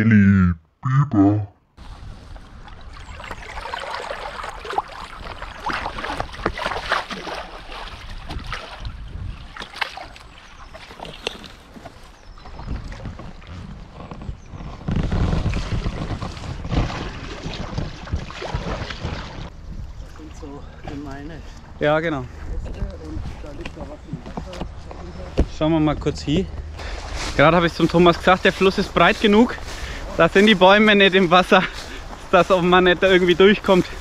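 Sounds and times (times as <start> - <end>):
water splashing from paddle: 2.2 - 13.7, 15.2 - 19.5
wind on microphone: 7.9 - 9.8, 12.2 - 20.2.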